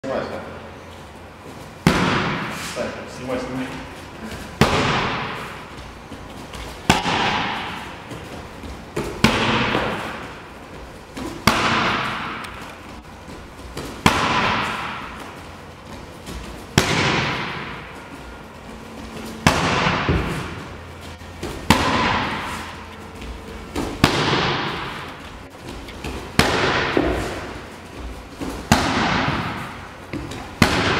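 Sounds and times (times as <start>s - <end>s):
barefoot kicks slapping kick shield: 1.8s - 2.6s, 4.6s - 5.8s, 6.5s - 10.4s, 11.1s - 12.6s, 13.7s - 17.9s, 19.2s - 30.9s.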